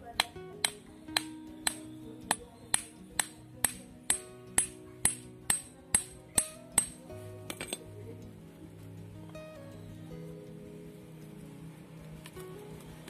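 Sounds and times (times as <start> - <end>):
machete striking bamboo stake: 0.0 - 7.8
background music: 0.0 - 13.0.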